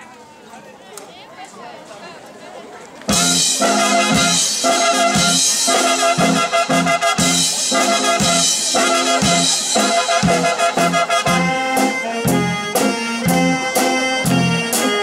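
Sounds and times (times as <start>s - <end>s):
drum beat: 3.1s - 15.0s
horns playing punchy phrase: 3.1s - 15.0s
jazz band playing: 3.1s - 15.0s.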